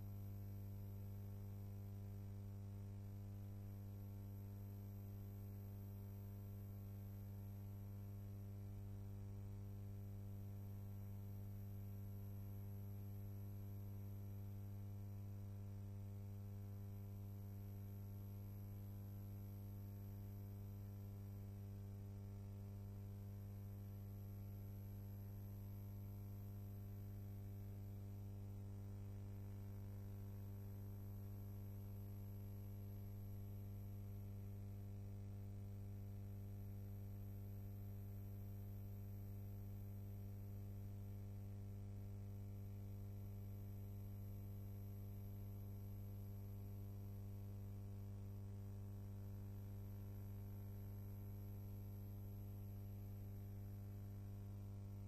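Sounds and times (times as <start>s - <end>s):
electrical mains hum: 0.0s - 1.3s.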